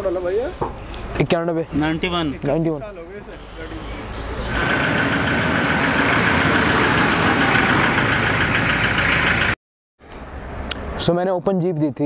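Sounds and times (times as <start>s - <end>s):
jeep engine droning with whine: 3.4s - 9.6s.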